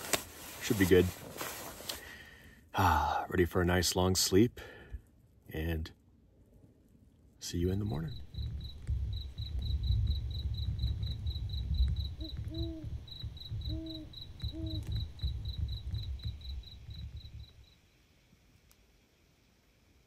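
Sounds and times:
wind rumbling on microphone: 7.6s - 17.7s
cricket chirping: 7.8s - 18.0s
owl hooting: 11.0s - 17.6s.

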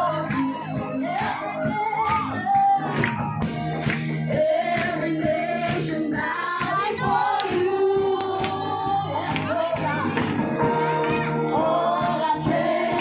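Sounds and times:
praise band worship song: 0.0s - 13.0s
singers leading melody: 0.0s - 13.0s
electric guitar: 8.2s - 13.0s.

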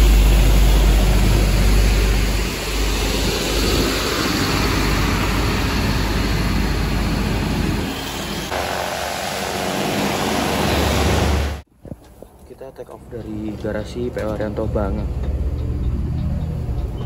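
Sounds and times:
diesel engine running: 0.0s - 11.6s
loud rushing noise: 0.0s - 11.6s.

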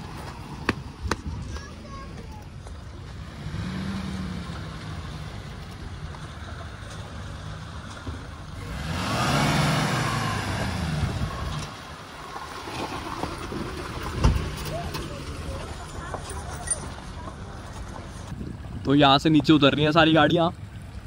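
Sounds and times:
tyres rolling over gravel: 0.0s - 19.9s
car engine revving: 3.0s - 16.4s.

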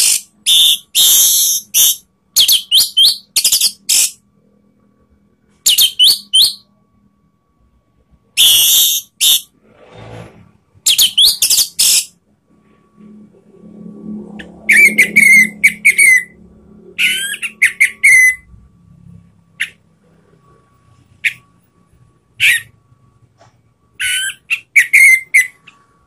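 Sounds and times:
thrush singing whistled phrases: 0.0s - 4.2s, 5.6s - 6.7s, 8.4s - 9.5s, 10.8s - 12.1s, 14.4s - 18.5s, 24.0s - 25.8s.

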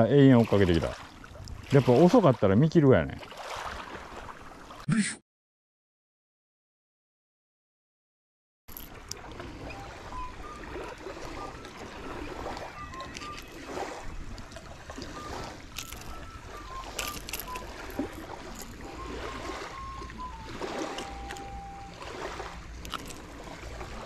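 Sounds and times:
small waves lapping: 0.0s - 4.9s, 8.7s - 24.0s
short high chirps: 15.1s - 22.1s
pliers clicking on hooks: 16.8s - 18.8s.

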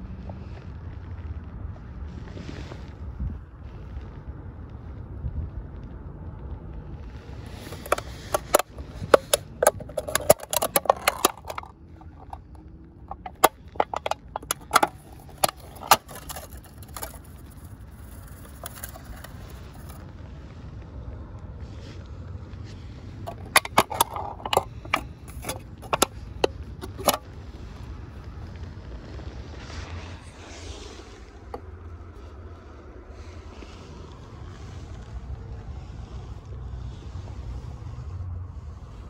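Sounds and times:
wind rumble on microphone: 0.0s - 7.7s
aluminium can crinkling: 7.4s - 20.0s, 23.2s - 27.4s.

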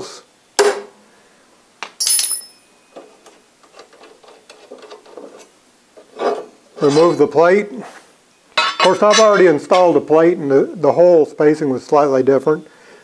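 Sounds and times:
ringing metallic clink: 2.0s - 2.9s.

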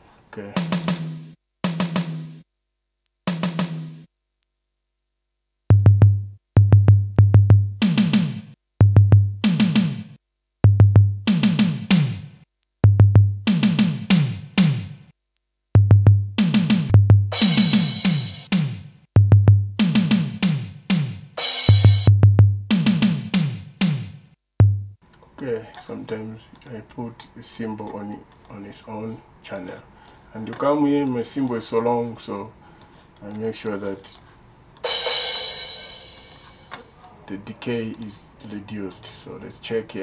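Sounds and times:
deep kick drums: 5.7s - 8.2s, 8.8s - 10.0s, 10.6s - 15.0s, 15.8s - 25.0s
cymbal crashes: 17.4s - 18.5s, 34.8s - 36.7s.

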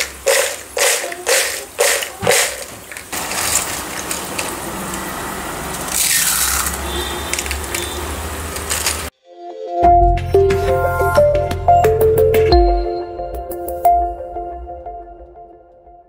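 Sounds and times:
chips rattling in plastic bowl: 0.0s - 9.1s
hand stirring through chips: 0.0s - 9.1s.

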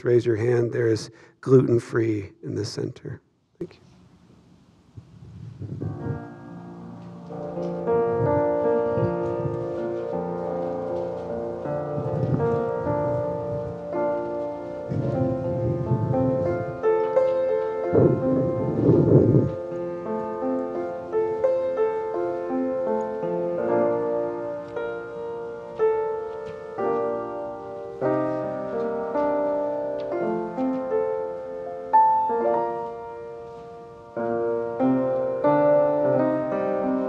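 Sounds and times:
solo piano: 5.0s - 37.0s.

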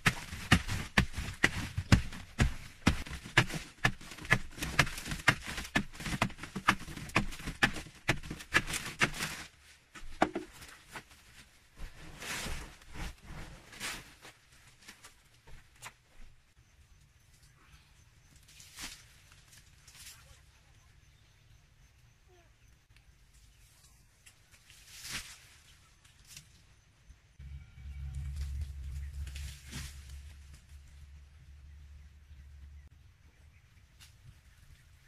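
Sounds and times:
hand scraping earth wall: 0.0s - 16.0s, 27.4s - 31.2s.

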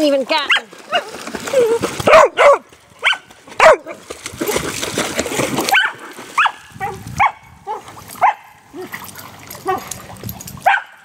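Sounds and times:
dog barking: 2.1s - 4.0s, 5.7s - 8.5s, 9.6s - 9.9s, 10.6s - 11.0s.

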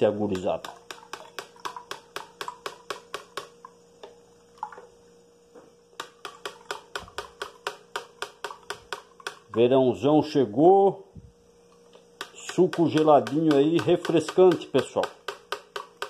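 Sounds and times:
ticking beat: 12.2s - 16.0s.

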